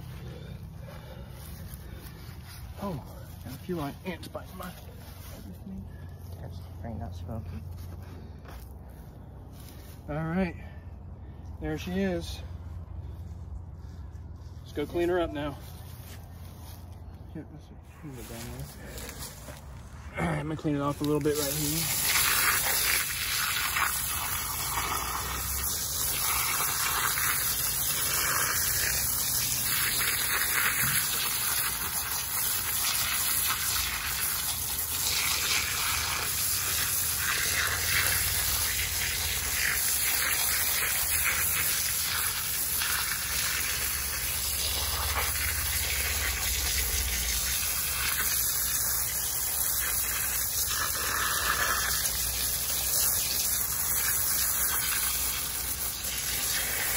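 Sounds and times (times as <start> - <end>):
hose water jet spraying: 0.0 - 5.4, 20.4 - 56.9
water and dirt splashing: 18.0 - 56.9.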